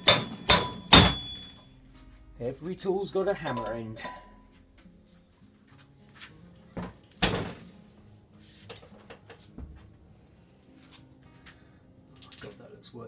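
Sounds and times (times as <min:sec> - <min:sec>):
hammer knocks on metal: 0:00.0 - 0:01.5.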